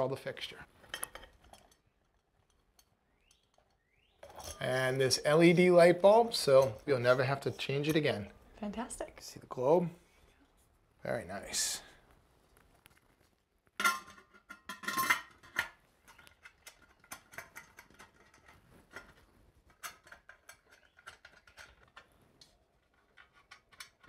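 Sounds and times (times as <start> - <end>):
glass clinking against metal: 2.8 - 5.5.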